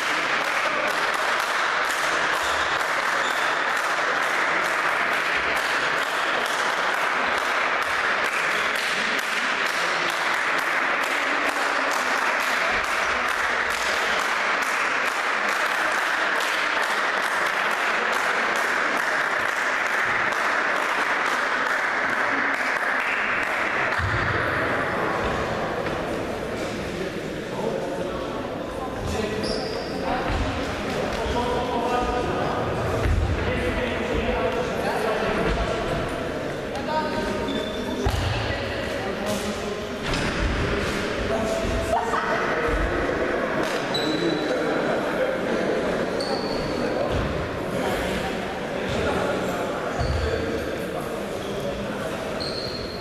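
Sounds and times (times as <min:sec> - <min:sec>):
audience applauding in a hall: 0:00.0 - 0:24.0.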